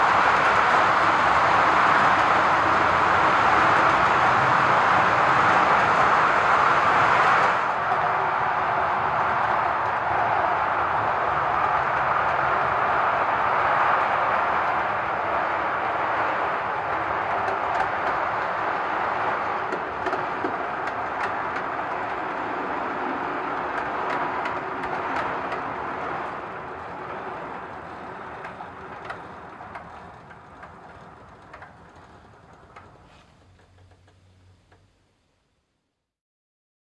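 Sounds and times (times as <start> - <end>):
wheels clicking over rail joints: 0.0 - 35.2
model train rolling rumble: 0.0 - 35.5.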